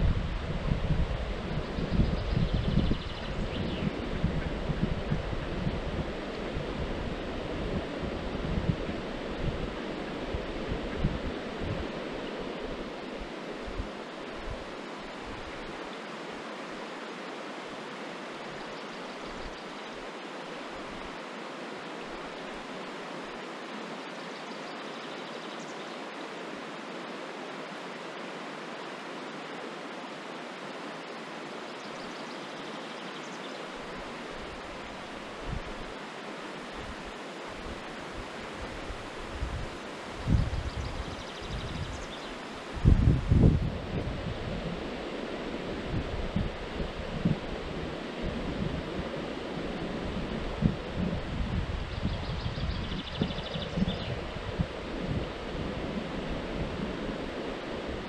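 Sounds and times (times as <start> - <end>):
wind buffeting microphone: 0.0 - 15.7, 36.8 - 58.0
river water rushing over stones: 32.6 - 40.2.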